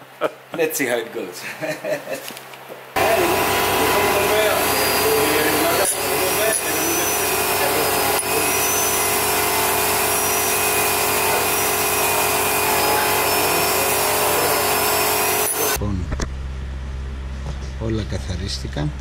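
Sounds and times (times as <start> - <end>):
rotary tool whining against metal: 3.0 - 15.8.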